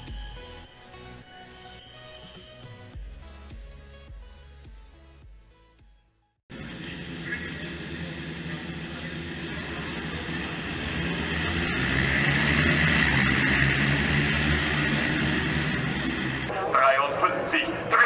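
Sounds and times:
motorcycles accelerating past: 0:06.6 - 0:16.5.

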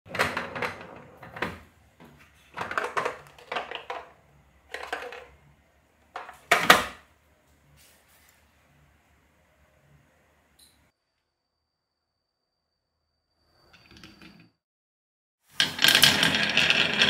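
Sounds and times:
plastic toy car knocks and rattles: 0:02.6 - 0:05.3.

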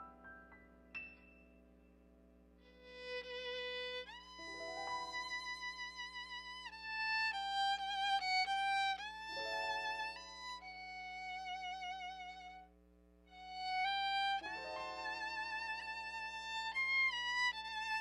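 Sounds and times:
solo violin slow melody: 0:02.6 - 0:12.7, 0:13.3 - 0:18.0
quiet instrumental backing track: 0:04.2 - 0:06.2, 0:13.4 - 0:17.1.

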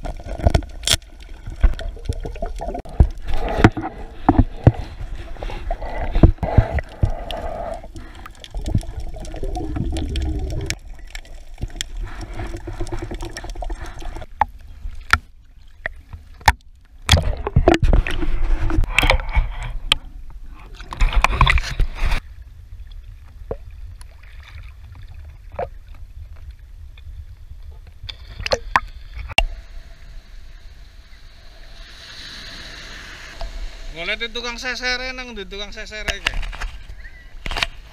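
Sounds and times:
underwater clicks and knocks: 0:00.0 - 0:05.2, 0:08.5 - 0:20.0
water swishing bursts: 0:00.0 - 0:15.0, 0:29.5 - 0:36.0.

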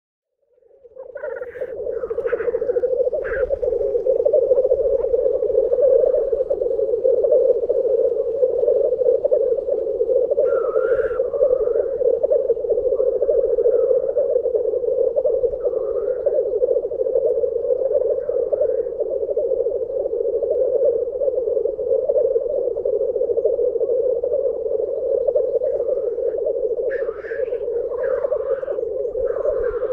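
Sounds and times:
grouse bubbling display song: 0:00.4 - 0:29.9
harsh bird calls: 0:01.0 - 0:03.6, 0:10.4 - 0:12.0, 0:25.6 - 0:29.9.

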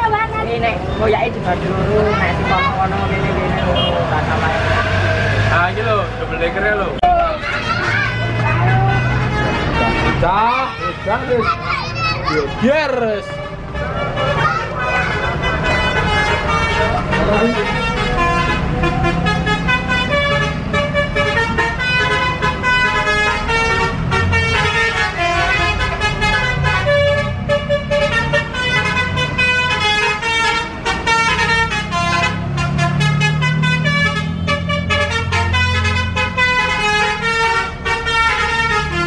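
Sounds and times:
heavy bus engines running: 0:00.0 - 0:39.0
bus musical horn melody: 0:03.6 - 0:04.0, 0:07.2 - 0:11.3, 0:12.4 - 0:39.0.

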